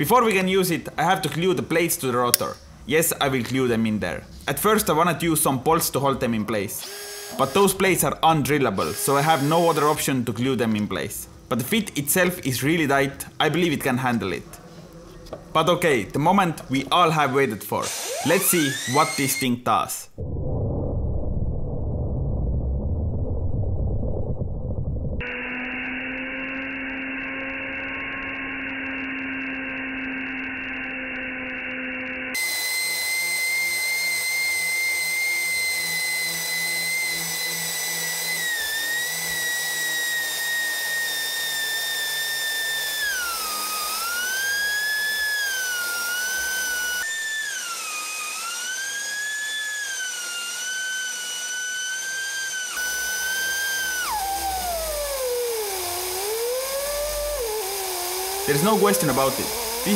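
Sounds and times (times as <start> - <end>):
blender whining: 6.8 - 8.1, 8.8 - 10.2, 17.8 - 19.5, 25.2 - 59.9.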